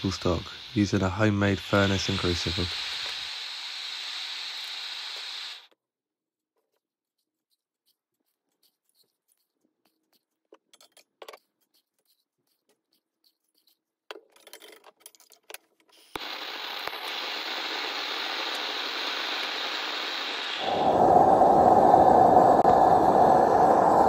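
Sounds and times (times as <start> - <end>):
gas flame hissing: 0.0 - 5.7, 16.2 - 24.0.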